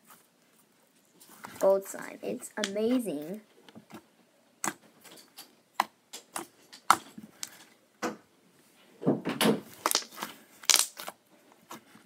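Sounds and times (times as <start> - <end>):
slime squishing: 2.6 - 7.8, 9.7 - 12.0
slime clicks and pops: 9.8 - 11.1.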